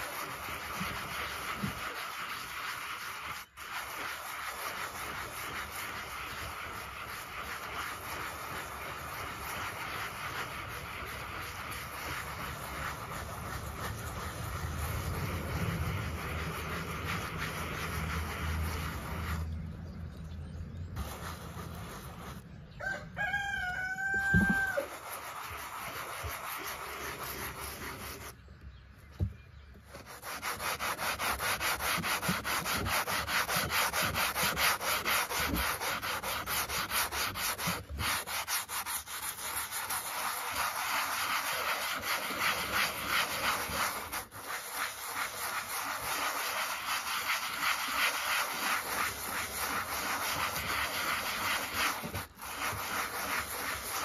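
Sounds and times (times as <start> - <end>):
sanding block scraping rusty steel: 0.0 - 20.0, 20.8 - 22.7, 23.3 - 28.4, 29.9 - 54.0
rooster crowing: 22.8 - 25.0.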